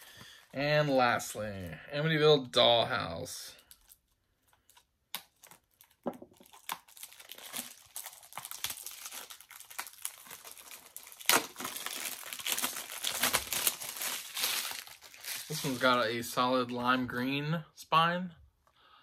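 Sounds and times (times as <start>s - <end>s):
packaging crinkling and tearing: 3.6s - 16.2s.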